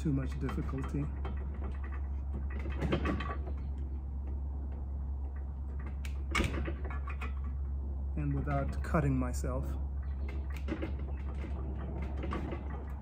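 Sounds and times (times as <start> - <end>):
sharp metal clicks: 0.0 - 7.8
metal bolt scraping and rattling: 0.0 - 13.0
steady low hum: 0.0 - 13.0.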